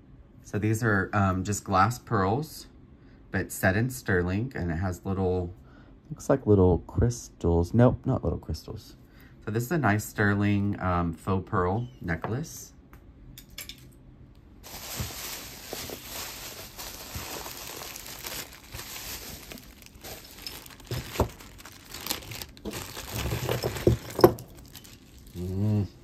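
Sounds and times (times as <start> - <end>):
plastic packaging crinkling: 14.6 - 25.7
jewelry clattering onto table: 23.2 - 24.7.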